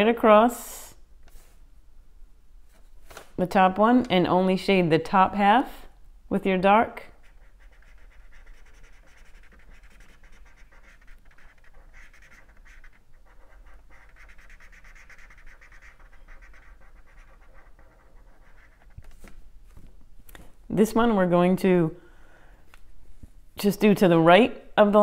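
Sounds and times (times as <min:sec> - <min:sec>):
marker scratching on paper: 0:07.0 - 0:19.4.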